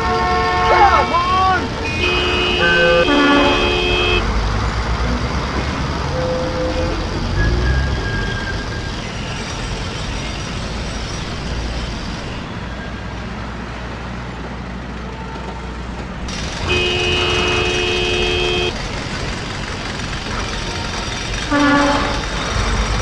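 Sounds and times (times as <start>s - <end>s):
vehicle horn: 0.0s - 4.3s, 16.6s - 18.8s, 21.5s - 22.2s
road traffic rumble: 0.0s - 23.0s.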